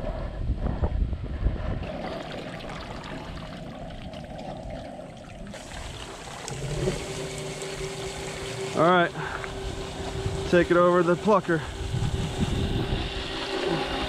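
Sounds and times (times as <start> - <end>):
water pouring and dripping: 1.8 - 8.8
water sloshing in a pot: 1.8 - 10.6.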